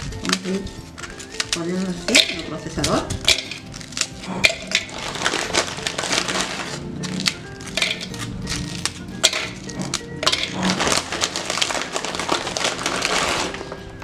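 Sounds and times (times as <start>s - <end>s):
cookies clattering into plastic bowl: 0.0s - 14.0s
plastic wrapper crinkling: 0.0s - 14.0s.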